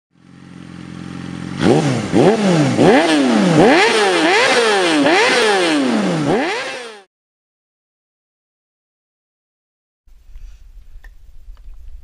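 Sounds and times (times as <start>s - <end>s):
motorcycle engine idling: 0.2s - 6.5s.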